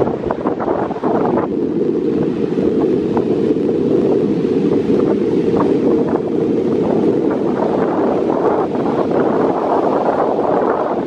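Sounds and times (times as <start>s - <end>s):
ocean surf washing on beach: 0.0s - 11.0s
wind buffeting microphone: 0.0s - 11.0s.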